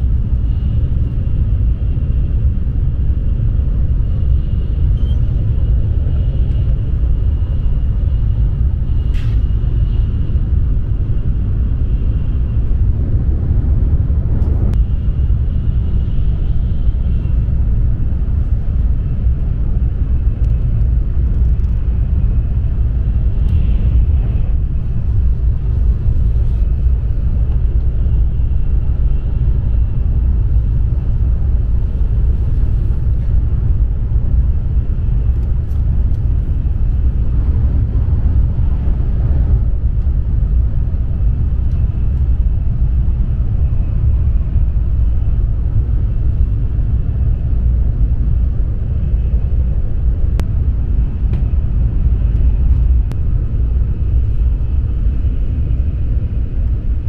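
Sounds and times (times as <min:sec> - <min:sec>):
train cabin low rumble: 0:00.0 - 0:57.0
faint high whine: 0:03.2 - 0:12.8.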